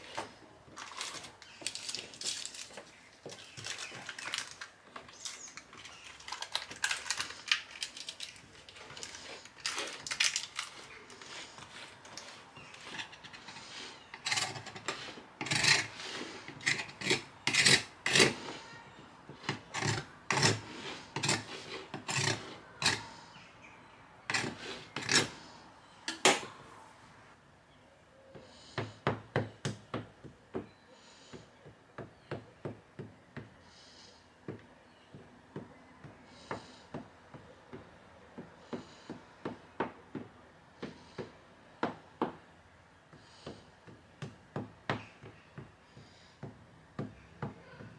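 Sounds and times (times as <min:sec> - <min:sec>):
knife scraping metal tart tin: 0:12.6 - 0:18.6, 0:19.4 - 0:23.0, 0:24.3 - 0:25.4.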